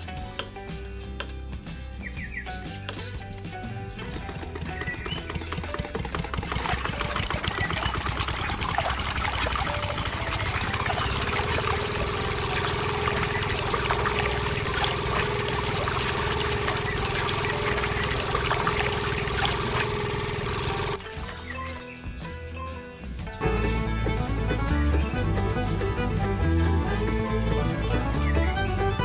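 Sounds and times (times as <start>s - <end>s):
small motor running: 4.0s - 21.8s
pouring sounds: 6.4s - 21.8s
steady hum: 8.0s - 21.0s.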